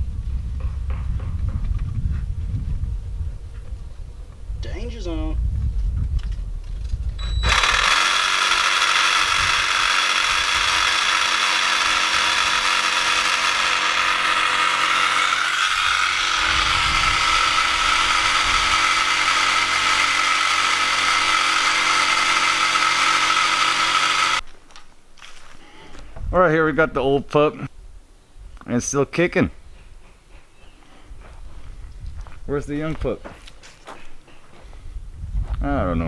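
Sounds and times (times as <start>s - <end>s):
power saw cutting wood: 7.4s - 24.4s.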